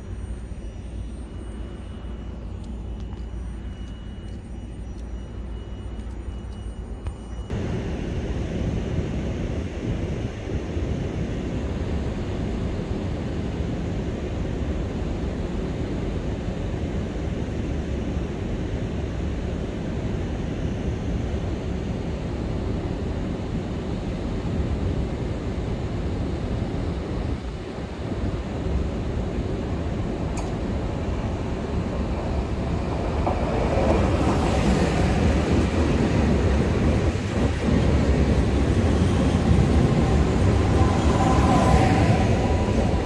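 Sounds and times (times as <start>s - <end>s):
wind buffeting microphone: 23.1s - 43.0s.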